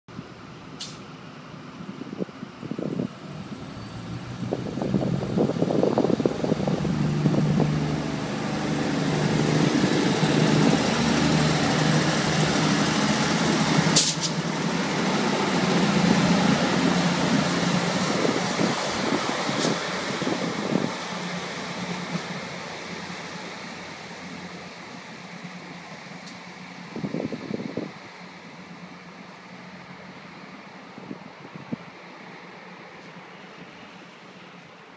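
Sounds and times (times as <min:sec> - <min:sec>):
diesel train engines running: 0:00.2 - 0:34.9
sharp crack: 0:13.8 - 0:14.6.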